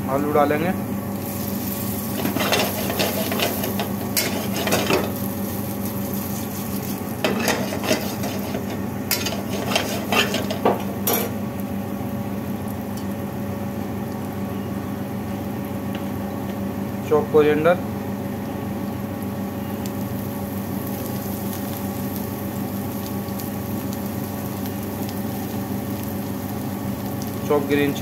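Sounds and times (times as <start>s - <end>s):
potatoes sizzling in hot oil: 1.1s - 14.4s, 18.9s - 28.0s
metal spoon scraping a pan: 2.2s - 5.1s, 6.4s - 11.3s.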